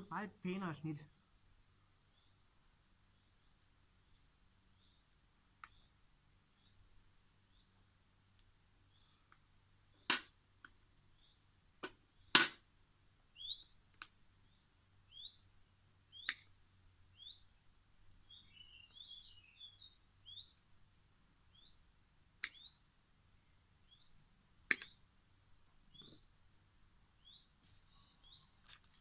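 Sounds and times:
small bird chirping: 0:00.0 - 0:12.4, 0:13.1 - 0:29.0
hand tool clicks and snaps: 0:11.8 - 0:12.6.

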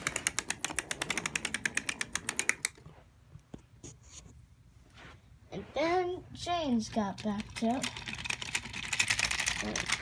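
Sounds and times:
toy train clicking on track: 0:00.0 - 0:02.8, 0:06.8 - 0:10.0.

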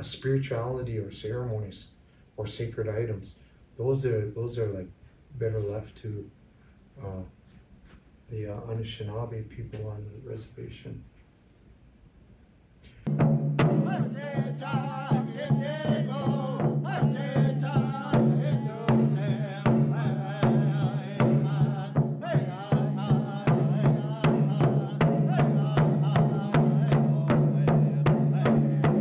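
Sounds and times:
drumbeat: 0:13.1 - 0:29.0
person singing: 0:13.6 - 0:29.0.

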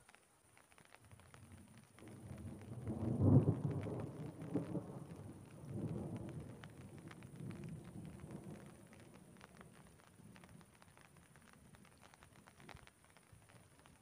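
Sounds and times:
raindrops ticking: 0:00.0 - 0:14.0
thunder rumbling: 0:02.0 - 0:10.7.

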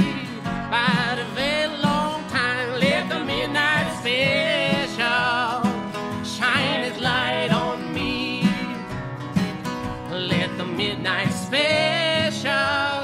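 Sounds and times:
acoustic guitars playing: 0:00.0 - 0:13.0.

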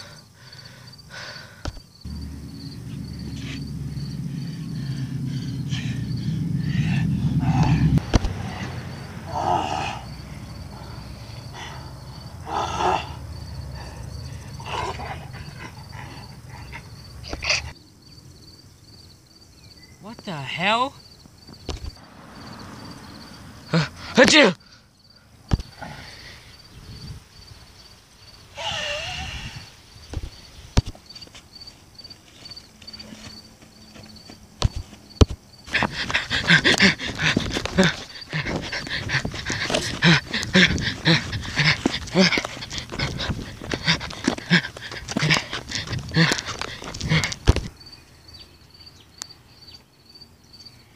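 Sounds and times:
faint insect chirping: 0:00.0 - 0:50.9
low rumble: 0:02.1 - 0:14.6
wavering cry: 0:02.1 - 0:17.8, 0:28.5 - 0:29.7, 0:35.7 - 0:47.7
footsteps running on grass: 0:31.2 - 0:47.7
monster growling and snarling: 0:35.7 - 0:47.6.

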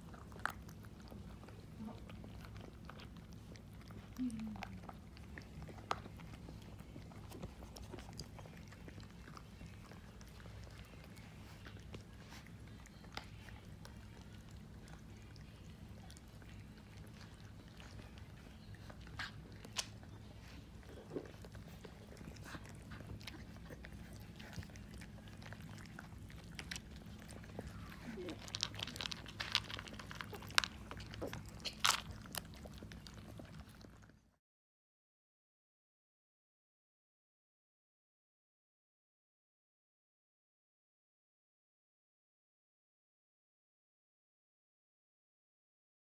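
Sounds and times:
puppies crunching dry kibble: 0:00.0 - 0:34.3.

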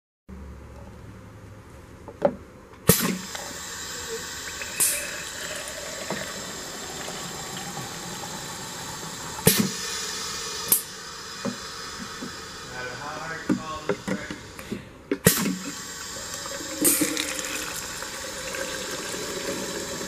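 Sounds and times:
short hiss: 0:02.9 - 0:18.4
water splashing into jug: 0:15.3 - 0:20.0.

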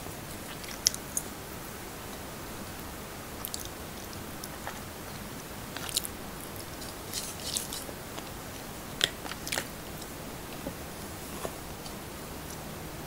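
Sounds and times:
faint steady hiss: 0:00.0 - 0:13.0
chewing and mouth sounds: 0:00.3 - 0:01.3, 0:03.4 - 0:12.7.

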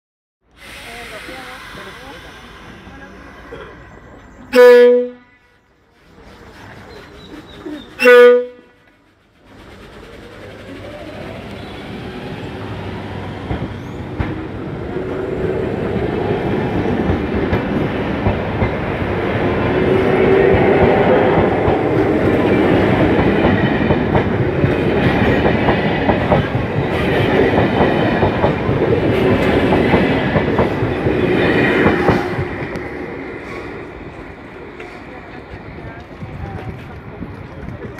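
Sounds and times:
train wheels clattering over joints: 0:08.7 - 0:12.4
train motors whining: 0:08.8 - 0:23.5.

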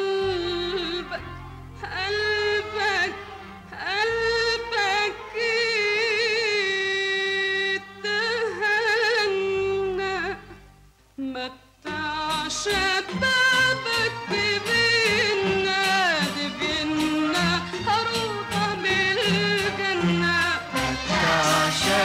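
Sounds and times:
woman singing: 0:00.0 - 0:10.6, 0:11.2 - 0:22.0
instrumental accompaniment: 0:11.9 - 0:22.0.

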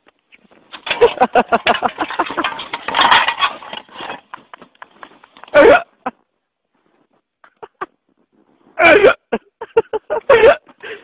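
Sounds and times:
man laughing in bursts: 0:08.8 - 0:10.7.

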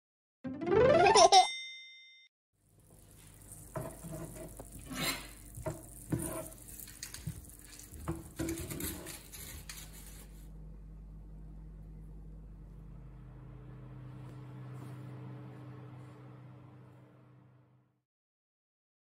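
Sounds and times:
utensil knocking and scraping pan: 0:03.6 - 0:10.2
low hum: 0:10.2 - 0:17.9.

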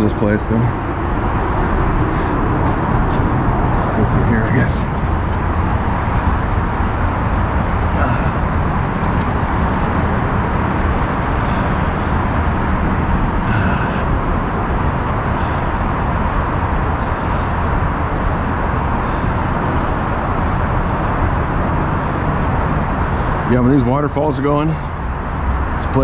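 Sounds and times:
heavy freeway traffic: 0:00.0 - 0:26.0.

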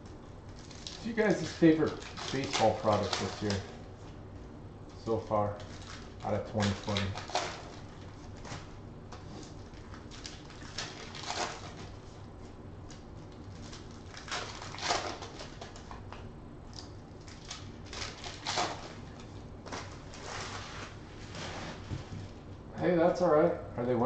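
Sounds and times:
foil wrappers crinkling: 0:00.4 - 0:03.9, 0:04.9 - 0:16.2, 0:16.8 - 0:22.4
foil packs being torn open: 0:00.6 - 0:03.8, 0:05.0 - 0:12.0, 0:12.9 - 0:16.0, 0:17.1 - 0:20.6.

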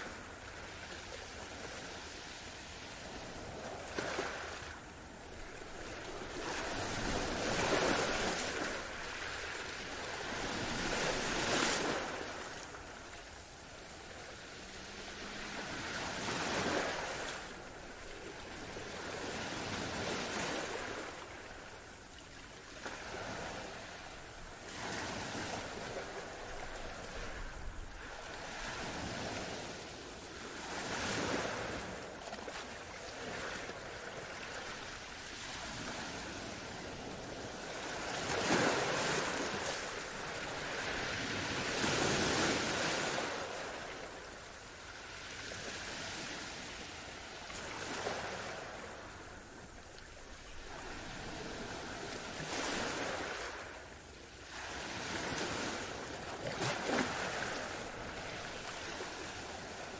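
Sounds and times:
ocean waves breaking: 0:00.0 - 0:53.8, 0:54.4 - 0:59.9.

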